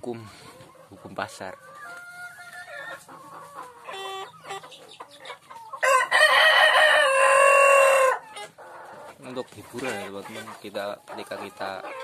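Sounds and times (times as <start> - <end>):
chickens clucking: 0.0 - 12.0
rooster crowing: 5.8 - 8.2.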